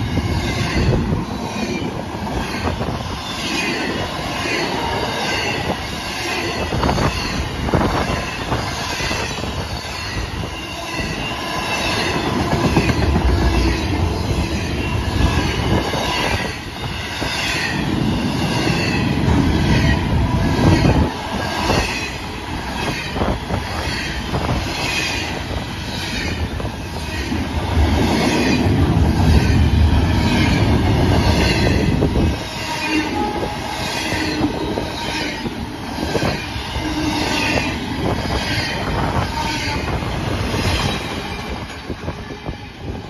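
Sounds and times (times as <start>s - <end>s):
train wheels rumbling on rails: 0.0s - 43.0s
high-pitched wheel squeal: 29.3s - 41.6s.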